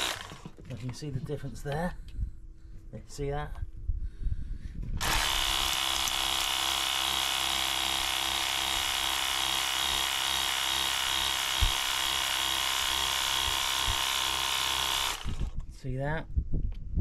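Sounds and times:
pressure washer pump whine: 0.0s - 0.5s, 5.0s - 15.5s.

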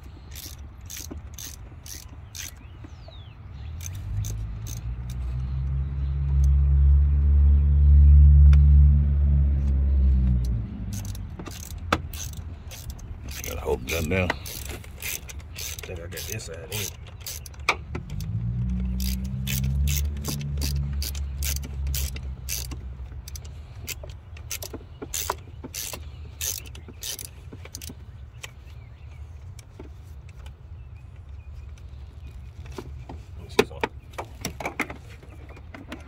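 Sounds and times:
hand ratchet clicking: 0.0s - 2.6s, 3.8s - 6.6s, 10.4s - 28.5s
vehicle engine rumble: 0.0s - 36.0s.

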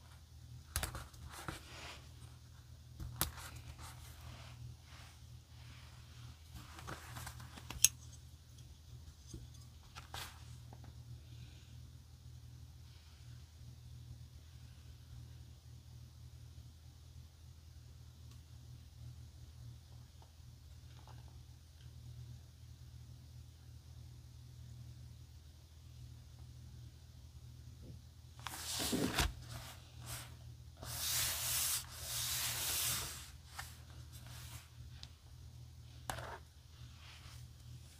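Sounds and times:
paper pages rustling: 0.7s - 2.0s, 6.5s - 7.8s, 28.4s - 34.7s
hands rubbing paper cover: 28.4s - 34.8s.

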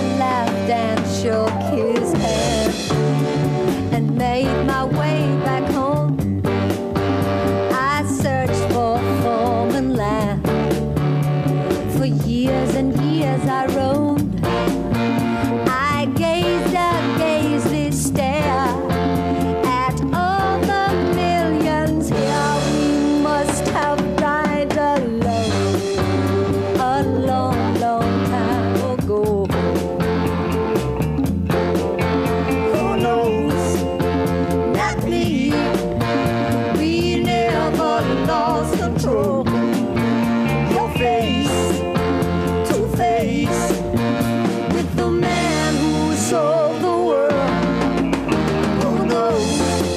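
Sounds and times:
woman singing with vibrato: 0.0s - 3.0s, 3.8s - 6.2s, 7.7s - 10.4s, 11.9s - 14.6s, 15.7s - 25.7s, 26.8s - 29.8s, 32.6s - 34.0s, 34.7s - 39.8s, 40.6s - 44.0s, 44.7s - 49.9s
bass line: 0.0s - 49.9s
drum kit beat: 0.0s - 49.9s.

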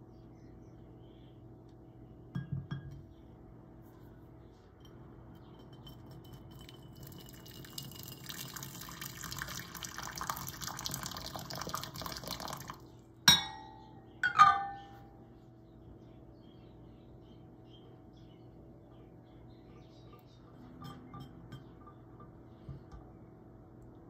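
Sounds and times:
water pouring into glass bowl: 6.5s - 12.8s
glass-on-glass clinks: 13.3s - 15.0s, 20.8s - 22.1s.

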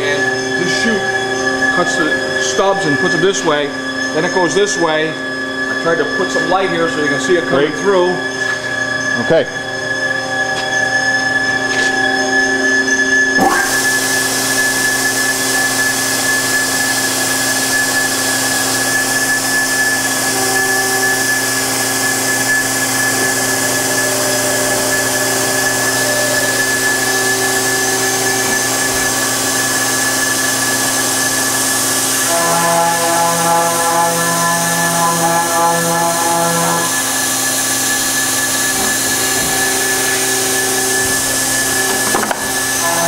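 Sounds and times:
cut-off saw whine: 0.0s - 43.0s
saw blade hiss: 13.4s - 43.0s.

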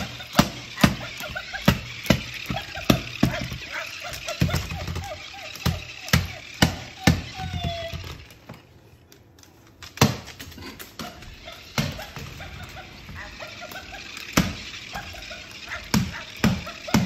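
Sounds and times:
toy knocking on wooden floor: 0.0s - 8.6s.

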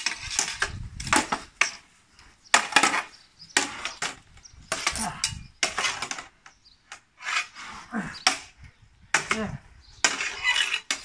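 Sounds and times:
weapons clashing on wooden shield: 2.5s - 6.3s, 9.2s - 11.0s.

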